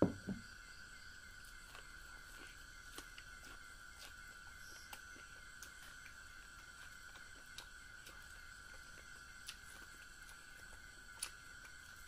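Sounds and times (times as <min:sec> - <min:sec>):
dull knocks: 0:00.0 - 0:00.4
person chewing corn on the cob: 0:01.2 - 0:12.0.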